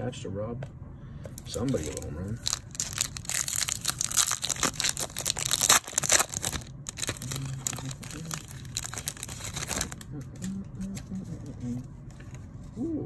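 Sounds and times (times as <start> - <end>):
plastic wrapper crinkling and tearing: 1.4 - 11.1.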